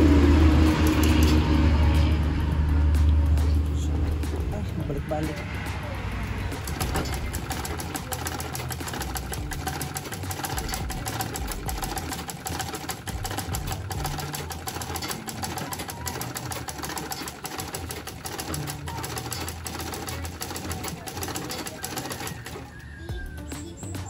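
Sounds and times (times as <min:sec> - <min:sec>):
sewing machine ticking: 0:06.6 - 0:22.9.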